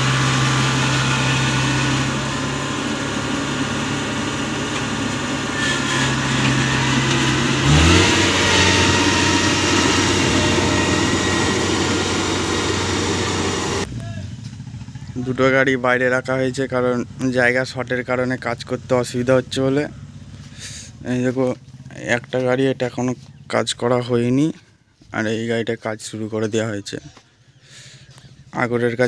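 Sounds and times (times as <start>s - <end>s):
diesel engine running: 0.0s - 22.4s.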